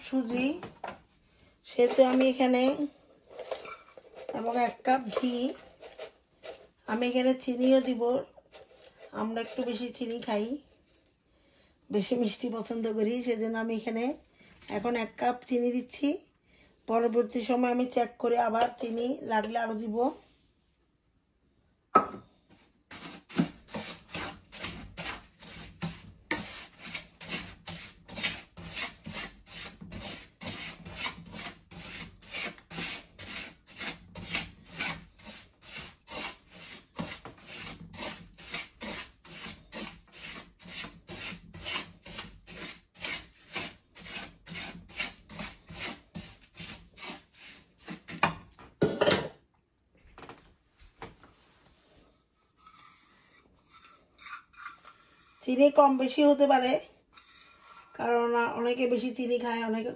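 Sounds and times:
wooden spatula scraping pan: 0.0s - 11.1s, 22.5s - 49.3s, 51.3s - 59.0s.

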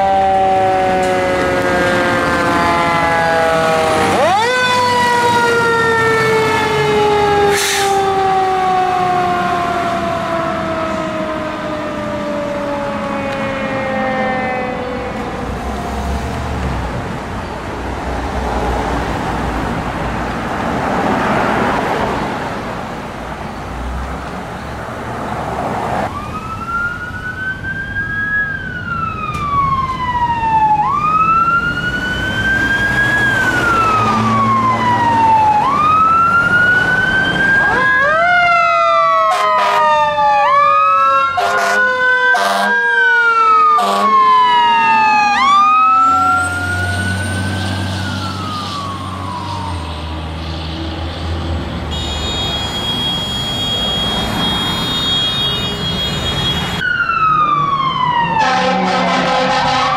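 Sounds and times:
lower siren tone sliding down: 0.0s - 16.4s, 26.0s - 51.0s, 56.8s - 59.9s
fire engine siren wailing: 0.0s - 16.6s, 25.1s - 59.9s
road and truck engine rumble: 0.0s - 59.9s
sharp horn blasts: 51.9s - 56.8s, 58.4s - 59.9s.

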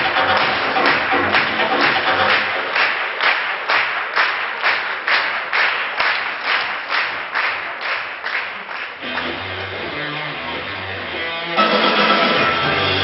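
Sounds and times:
hands clapping steady beat: 0.0s - 9.8s.

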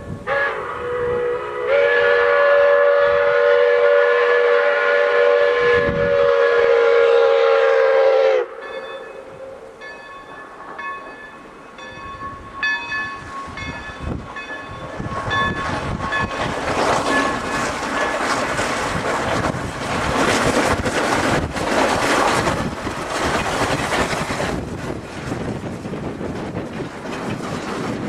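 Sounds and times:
steam whistle blasts: 0.0s - 9.8s
steam locomotive passing: 0.0s - 28.0s.

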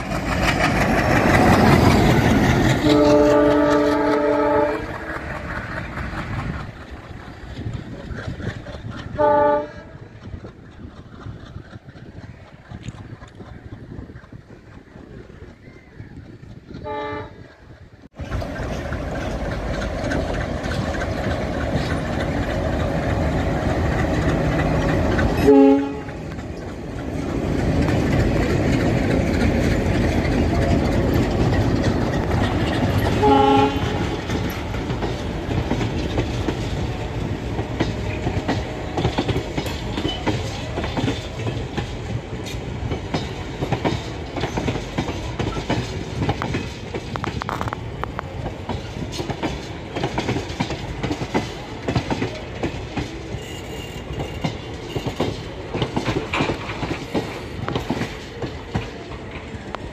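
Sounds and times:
wheels clicking over rail joints: 0.0s - 59.9s
train horn blast: 2.8s - 5.1s, 9.2s - 10.0s, 16.8s - 17.4s, 25.4s - 26.2s, 33.2s - 34.2s, 53.3s - 55.2s.

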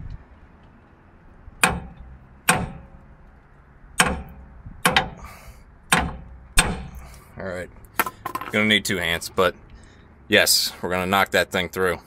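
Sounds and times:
hammer striking metal: 1.6s - 3.0s, 4.0s - 5.3s, 5.9s - 7.0s.

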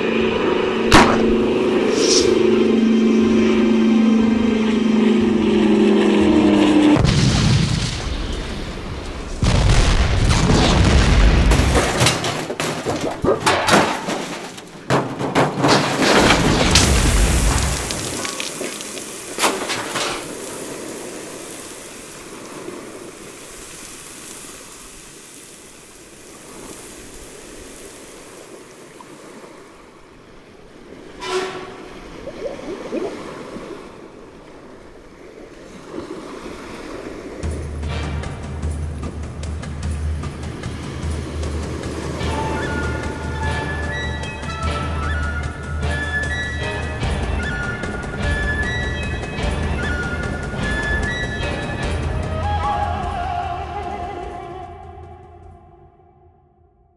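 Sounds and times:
deep rumble: 0.0s - 11.7s
sharp crack: 0.9s - 2.3s, 9.4s - 20.6s
explosion booms and crashes: 7.0s - 8.3s, 9.4s - 11.9s
steady hiss: 17.9s - 28.9s.

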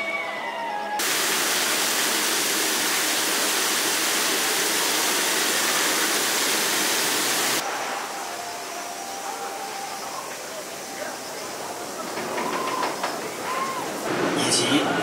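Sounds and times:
rush of falling water: 1.0s - 15.0s.

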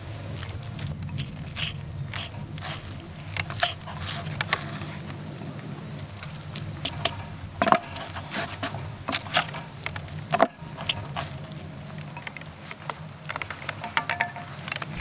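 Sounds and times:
chopsticks scraping in a pot: 0.6s - 5.3s, 6.2s - 15.0s.

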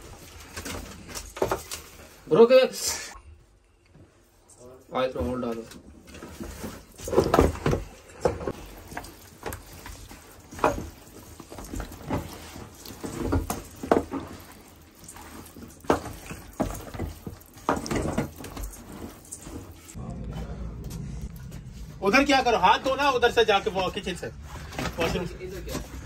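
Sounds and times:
hands mixing wet fish: 8.5s - 20.0s.

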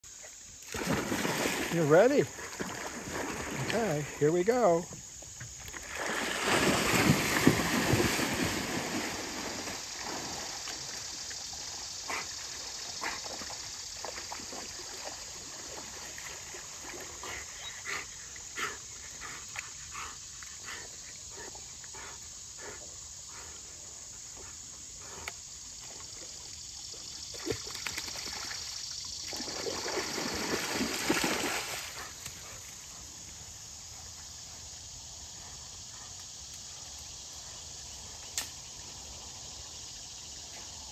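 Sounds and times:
dog splashing in water: 0.6s - 4.0s, 5.7s - 11.0s, 27.3s - 32.2s
stream trickling: 25.7s - 32.6s.

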